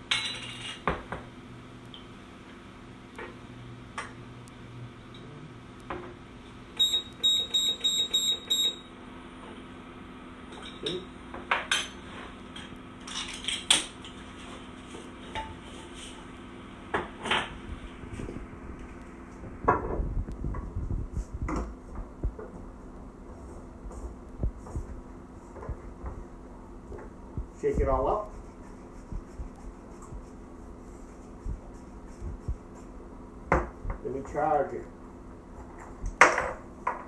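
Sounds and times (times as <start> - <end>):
kitchenware clinking: 0.1 - 0.8.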